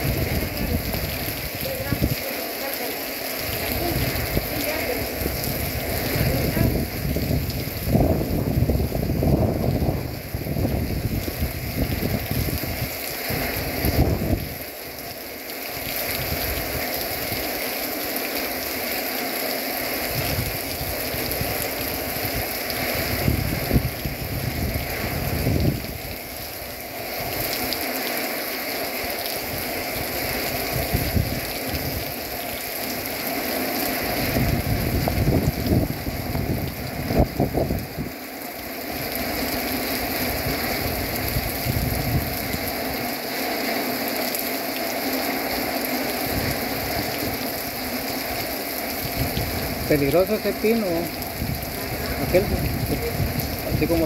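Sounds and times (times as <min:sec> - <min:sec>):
heavy rain pouring: 0:00.0 - 0:54.0
low rumbles: 0:49.0 - 0:54.0.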